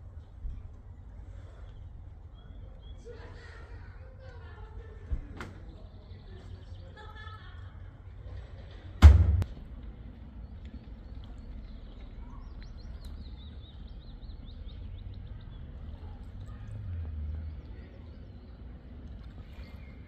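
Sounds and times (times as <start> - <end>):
steady low rumble: 7.6 - 20.0.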